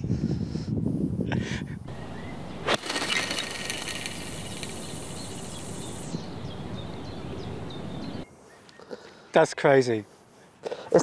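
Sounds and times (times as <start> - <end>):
fishing reel whirring: 1.9 - 6.4
golf club striking ball: 1.9 - 8.2.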